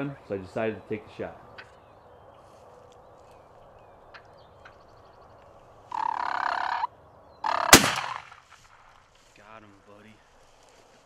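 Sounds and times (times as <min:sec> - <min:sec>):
turkey gobbling: 0:05.9 - 0:08.4
shotgun blast: 0:07.7 - 0:08.5.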